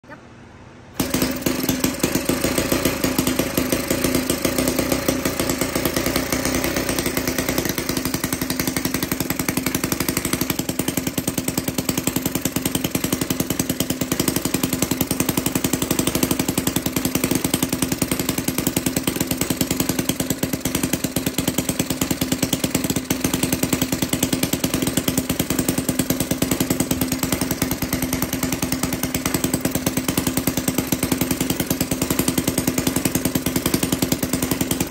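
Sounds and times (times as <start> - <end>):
small gasoline engine running: 0.9 - 34.9.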